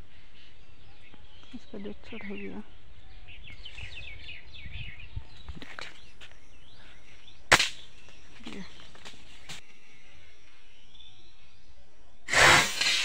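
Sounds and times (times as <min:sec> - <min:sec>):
small birds chirping: 0:00.0 - 0:13.0
sharp snap: 0:07.5 - 0:07.9, 0:12.3 - 0:13.0.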